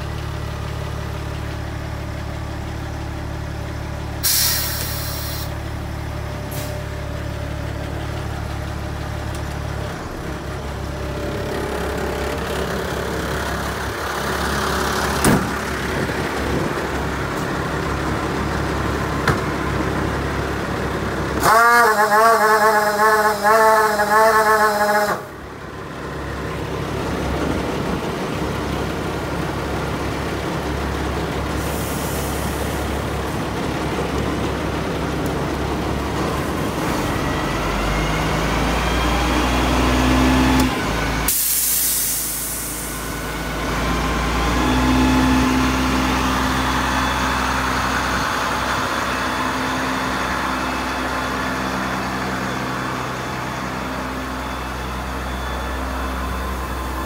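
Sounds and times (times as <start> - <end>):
diesel engine running pump: 0.0 - 57.0
sudden loud hiss: 4.2 - 5.5, 41.3 - 43.2.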